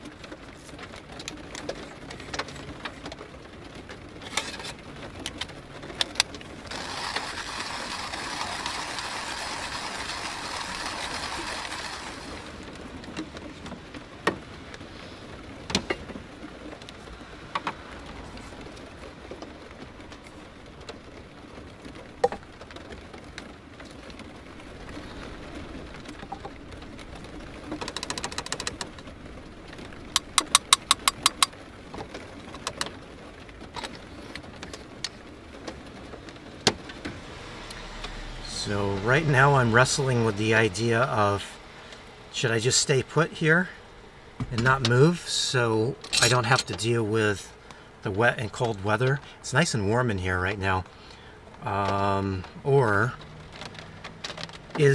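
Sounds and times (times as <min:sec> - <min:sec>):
car tyres hissing on wet street: 0:06.6 - 0:15.7, 0:33.0 - 0:43.0
coffee beans ticking: 0:30.2 - 0:31.5
coffee gear clinking: 0:30.2 - 0:31.5, 0:46.1 - 0:46.7.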